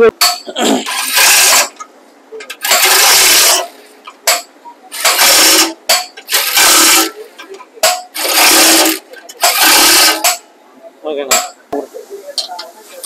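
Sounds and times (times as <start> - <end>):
electric impact wrench bursts: 0.9 - 1.7, 2.6 - 3.8, 4.9 - 7.2, 8.2 - 10.2.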